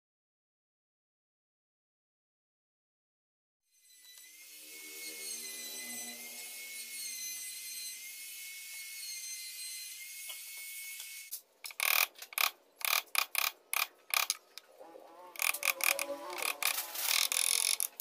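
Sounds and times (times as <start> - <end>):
power tool motor whining: 4.0 - 13.5, 14.1 - 18.0
rasping strokes: 11.7 - 18.0.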